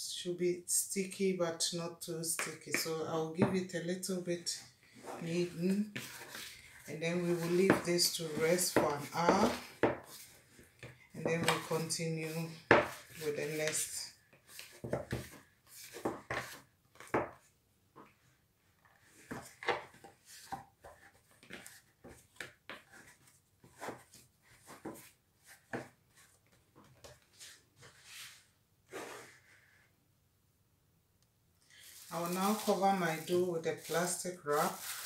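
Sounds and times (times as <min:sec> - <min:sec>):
dough squelching and knocking: 0:05.2 - 0:18.2.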